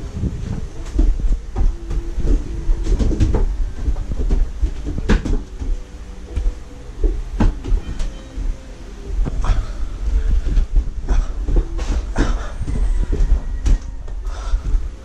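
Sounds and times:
plastic basket knocks and clatters: 0.9 - 5.8.

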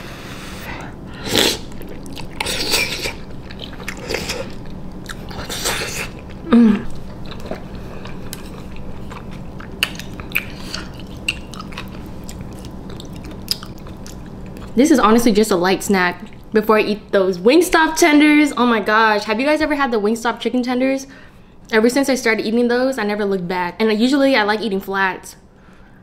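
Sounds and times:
person slurping noodles: 0.2 - 3.2, 5.4 - 6.9
person chewing: 1.1 - 14.8.

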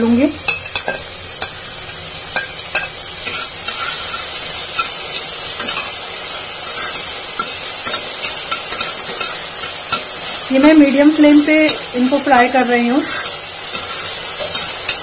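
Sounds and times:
vegetables sizzling in a pan: 0.0 - 15.0
spoon scraping a pan: 0.5 - 15.0.

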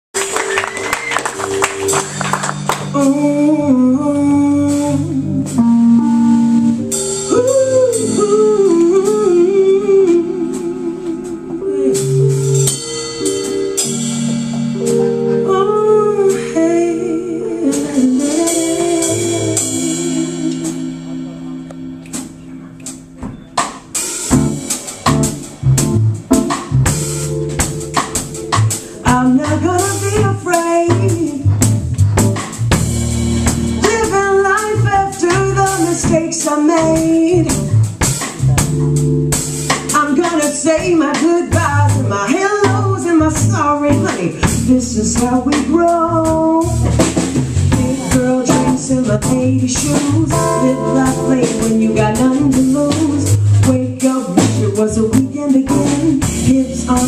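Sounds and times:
live jazz band playing: 0.2 - 57.0
woman singing with vibrato: 2.8 - 5.8, 7.3 - 12.4, 15.3 - 21.2, 29.0 - 31.5, 33.8 - 37.6, 40.0 - 46.9, 47.7 - 57.0
sharp drum hits: 46.8 - 50.1.

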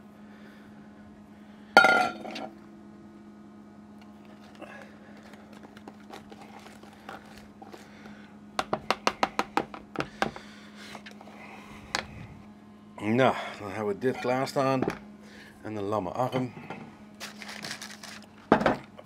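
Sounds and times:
steady low hum: 0.0 - 19.0
metal bowl clanking down: 1.8 - 2.5.

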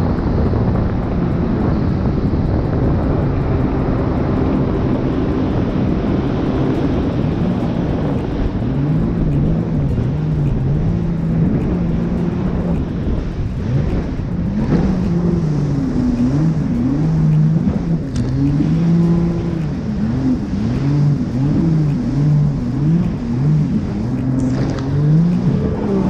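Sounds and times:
jet ski engine: 0.0 - 26.0
wind and water spray rushing: 0.0 - 26.0.

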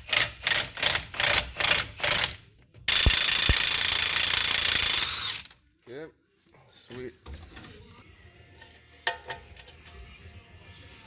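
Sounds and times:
impact wrench pulsing and whining: 0.0 - 5.6.

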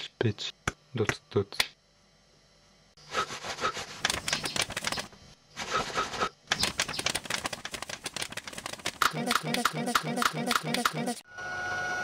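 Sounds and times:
rapid dry clattering clicks: 4.0 - 5.1, 6.5 - 11.0.

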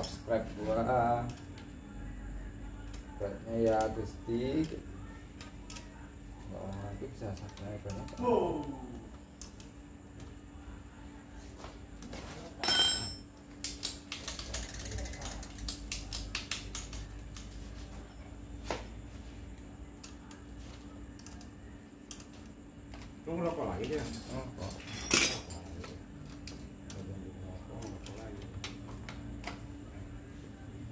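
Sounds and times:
short ringing clink: 12.6 - 13.3
bicycle freehub ratcheting clicks: 13.7 - 17.0.

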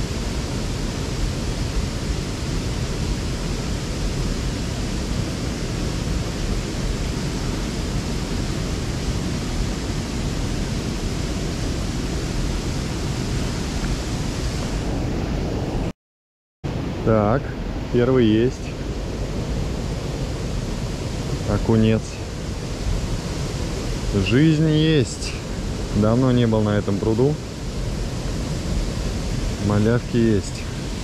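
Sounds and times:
water rushing through spillway: 17.4 - 31.0.

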